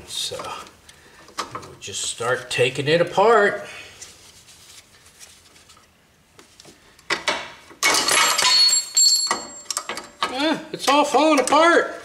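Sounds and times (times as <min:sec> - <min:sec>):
metal parts clinking and rattling: 0:07.8 - 0:10.4.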